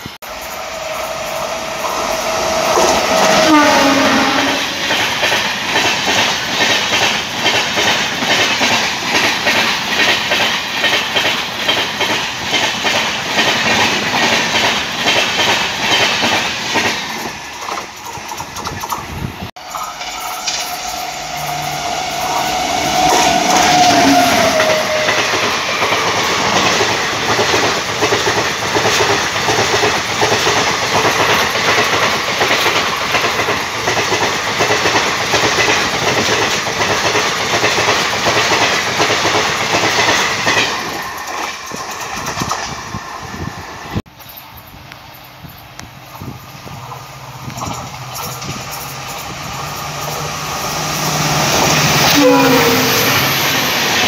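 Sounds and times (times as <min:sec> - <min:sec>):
train rushing past: 0:00.0 - 0:54.0
train wheels clacking over rails: 0:00.0 - 0:54.0
train horn: 0:00.7 - 0:05.0, 0:20.0 - 0:25.5, 0:51.8 - 0:53.6.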